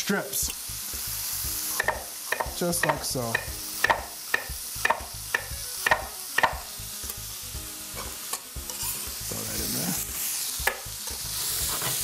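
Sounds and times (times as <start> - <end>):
food sizzling in a skillet: 0.0 - 12.0
knife striking cutting board: 1.7 - 6.6, 10.6 - 10.9.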